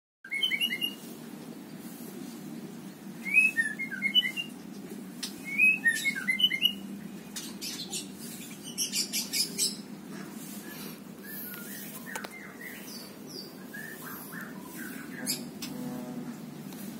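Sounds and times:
songbird chirping: 0.3s - 2.1s, 3.1s - 16.6s
steady low hum: 3.9s - 16.9s.

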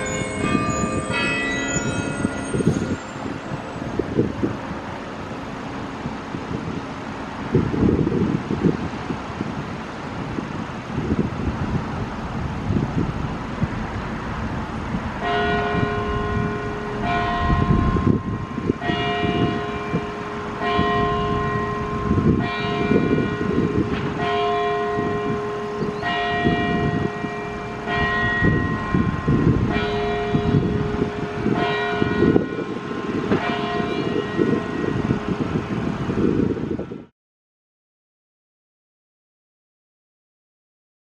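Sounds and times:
clock tower bell striking: 0.0s - 5.6s, 13.3s - 35.8s.

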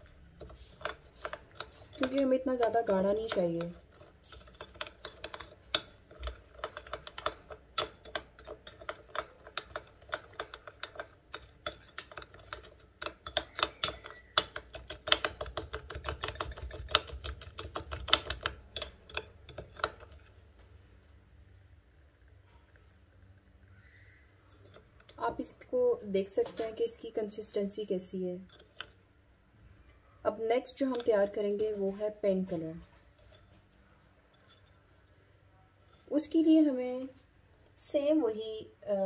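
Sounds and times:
metal spoon clicking in ceramic bowl: 0.8s - 20.2s.

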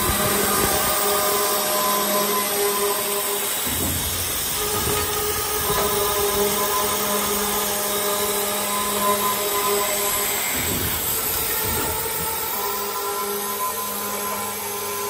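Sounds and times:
circular saw whine cutting metal: 0.0s - 15.0s.

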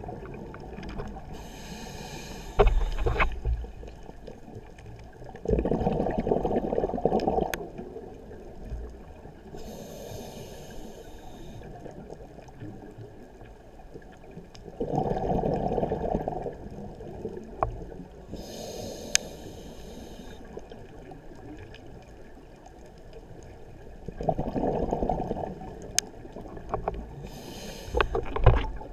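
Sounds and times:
exhaled bubbles underwater: 0.0s - 9.9s, 11.6s - 19.0s, 23.4s - 28.9s
regulator hiss: 1.4s - 3.4s, 9.6s - 11.7s, 18.3s - 20.5s, 27.2s - 28.2s.

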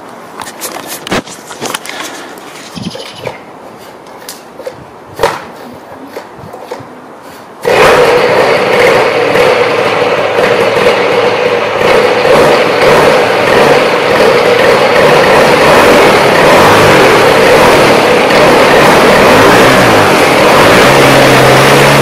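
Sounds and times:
paramotor engine running: 7.6s - 22.0s.

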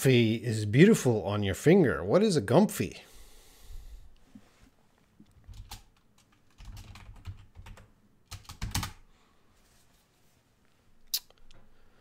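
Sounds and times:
typing on computer keyboard: 5.3s - 9.0s.

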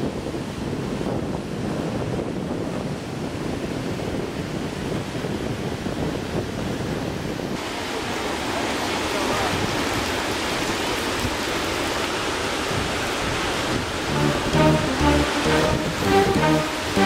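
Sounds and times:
wind buffeting microphone: 0.0s - 7.6s
ocean surf rushing: 14.0s - 17.0s.

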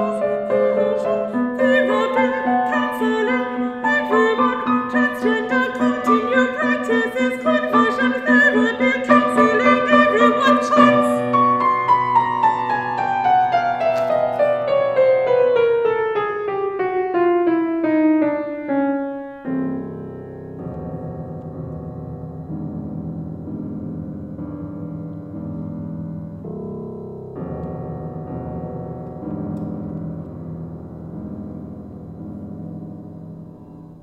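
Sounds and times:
woman singing: 0.0s - 11.4s
piano accompaniment: 0.0s - 34.0s.

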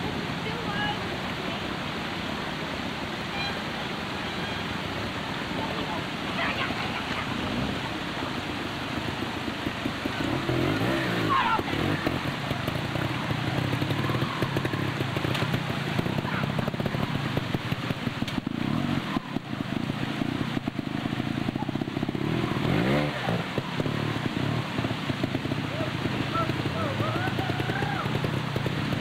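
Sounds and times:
motorcycle engine at low revs: 7.2s - 29.0s.

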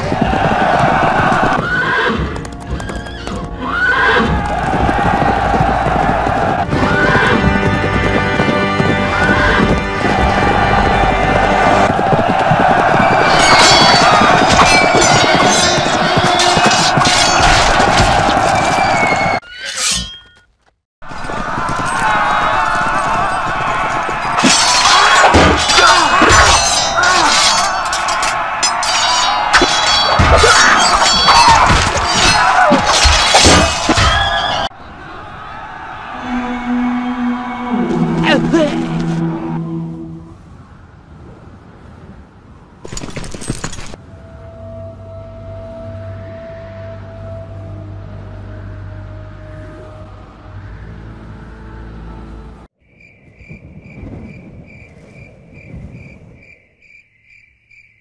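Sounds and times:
music: 2.2s - 11.9s, 36.2s - 40.4s, 44.0s - 52.7s
swords clashing: 24.4s - 34.5s
low rumbling noise: 35.8s - 41.0s
crickets chirping: 52.8s - 58.0s.

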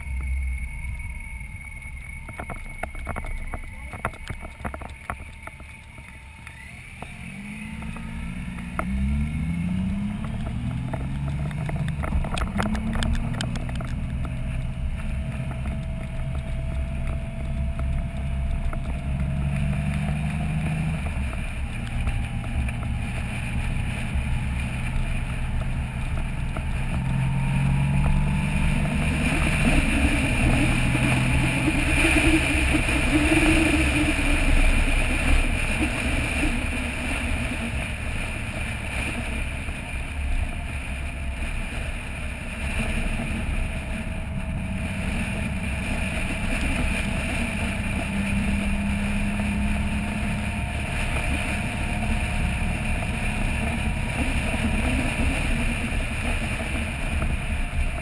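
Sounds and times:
motorcycle engine accelerating: 0.0s - 58.0s
wind rush: 0.0s - 58.0s.

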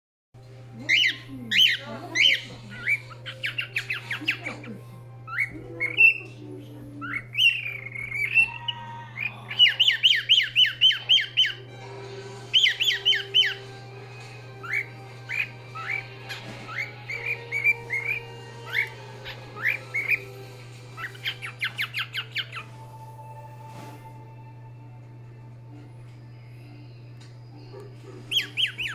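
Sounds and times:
young cockatiel chirping and whistling: 7.2s - 8.8s, 9.5s - 11.6s, 12.5s - 13.7s, 14.6s - 20.3s, 21.0s - 22.8s, 28.3s - 28.9s.

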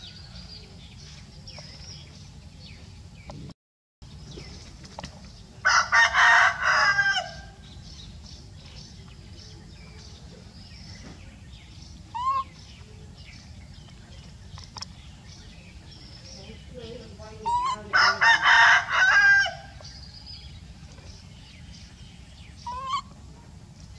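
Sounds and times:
rooster crowing: 5.6s - 7.6s, 17.9s - 19.8s.

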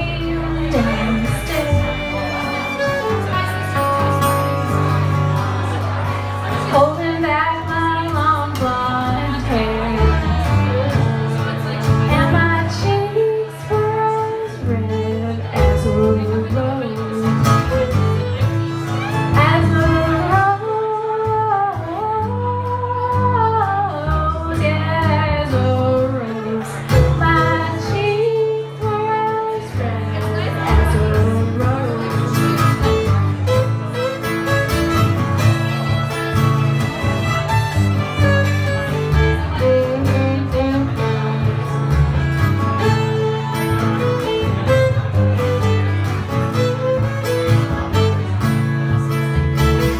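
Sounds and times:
woman singing: 0.0s - 4.0s, 6.6s - 18.2s, 19.2s - 32.8s, 39.5s - 41.8s
fiddle: 0.0s - 49.9s
strummed acoustic guitar: 0.0s - 49.9s
upright double bass: 0.0s - 49.9s.

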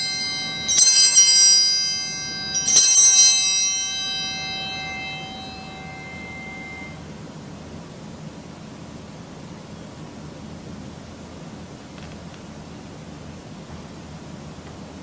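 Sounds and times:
altar bells ringing: 0.0s - 7.2s.

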